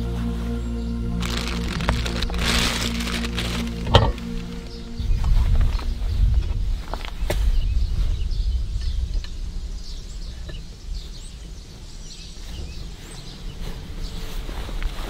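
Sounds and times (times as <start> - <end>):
strong low rumble: 0.0 - 11.6
small birds chirping: 0.7 - 15.0.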